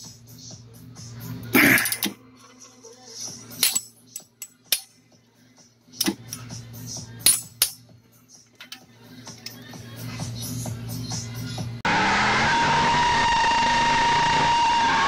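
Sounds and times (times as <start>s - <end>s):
hand tool clinking on metal: 1.6s - 2.2s, 3.5s - 5.0s, 6.0s - 6.6s, 7.2s - 7.9s, 8.5s - 9.6s.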